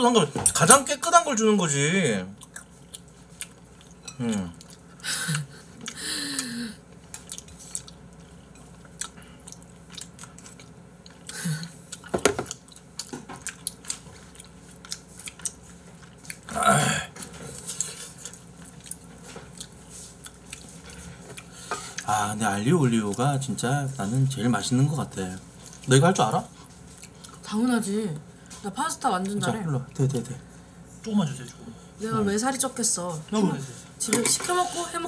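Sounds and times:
chewing pasta: 0:02.4 - 0:06.0, 0:06.9 - 0:16.6, 0:17.2 - 0:22.1, 0:25.2 - 0:27.6.

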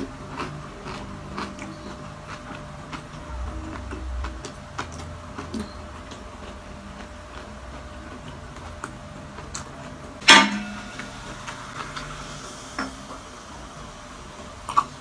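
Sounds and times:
crunchy chewing: 0:00.0 - 0:10.2.

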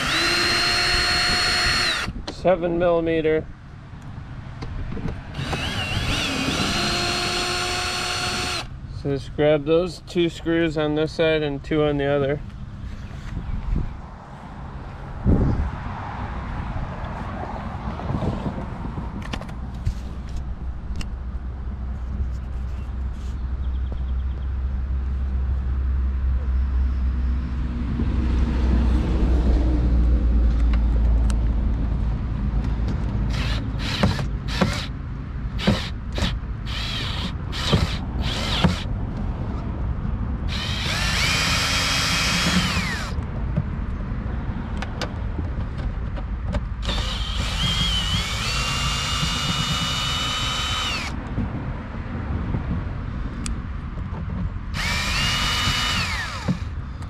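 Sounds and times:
cordless drill motor whine: 0:00.0 - 0:02.2, 0:05.3 - 0:08.7, 0:33.3 - 0:34.9, 0:35.6 - 0:38.9, 0:40.5 - 0:43.2, 0:46.8 - 0:51.2, 0:54.8 - 0:56.8
screws clicking and clattering: 0:46.8 - 0:51.2.

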